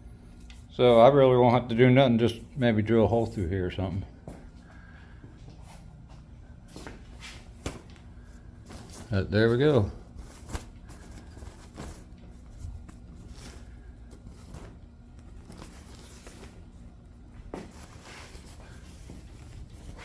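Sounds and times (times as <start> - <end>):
steady low hum: 0.0 - 20.0
cloth flag rustling: 6.7 - 20.0.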